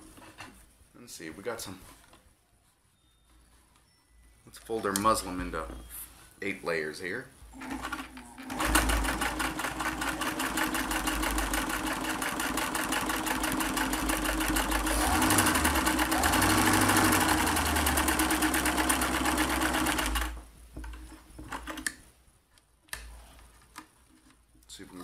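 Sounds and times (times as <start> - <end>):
sewing machine running: 7.6 - 20.4.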